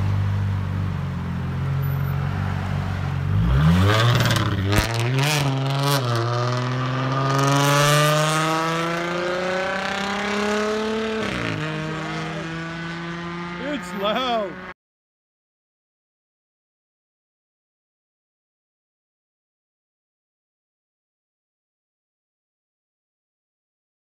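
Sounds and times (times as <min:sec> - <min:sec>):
car engine revving: 0:00.0 - 0:14.7.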